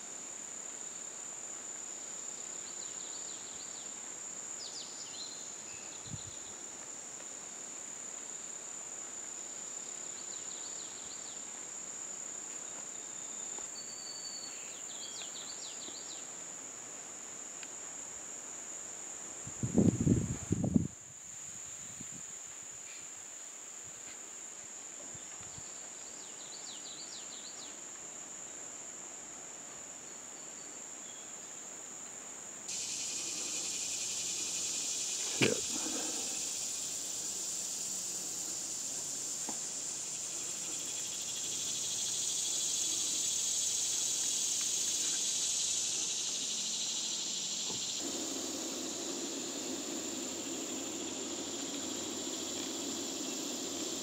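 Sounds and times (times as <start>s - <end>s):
loud broad insect buzz: 32.5s - 54.0s
insect high even trill: 32.7s - 43.7s, 44.9s - 54.0s.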